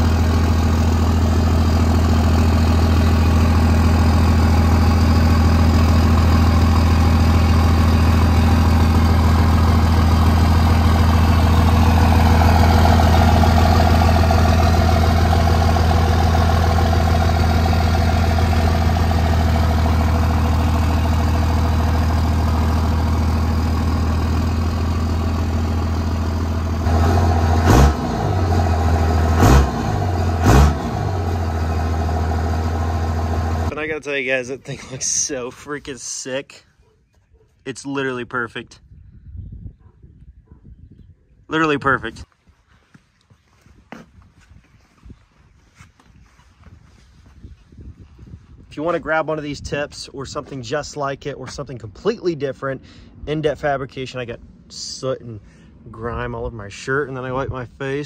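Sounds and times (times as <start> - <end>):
engine throttle blips: 0.0 - 34.0
diesel engine idling: 0.0 - 34.5.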